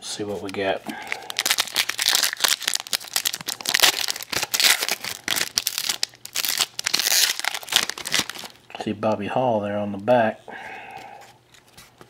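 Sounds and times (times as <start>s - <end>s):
wrapper tearing and crinkling: 1.0s - 8.6s.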